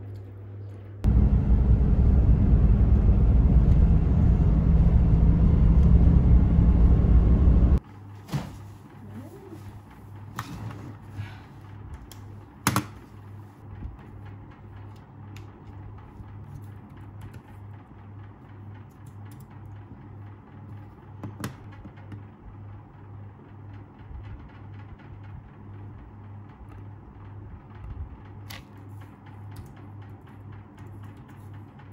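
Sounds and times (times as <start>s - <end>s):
steady low hum: 0.4s - 8.0s.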